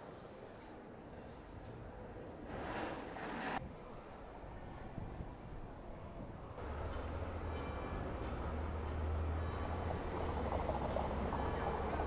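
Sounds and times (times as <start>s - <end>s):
tram passing with low hum: 4.0s - 12.0s
road traffic noise: 6.6s - 12.0s.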